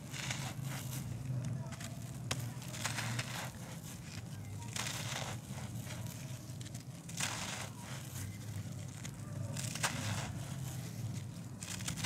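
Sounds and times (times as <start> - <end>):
hands crumbling dry earth: 0.0 - 12.0
steady low hum: 0.0 - 12.0
sharp crack: 6.9 - 8.2, 9.0 - 10.6.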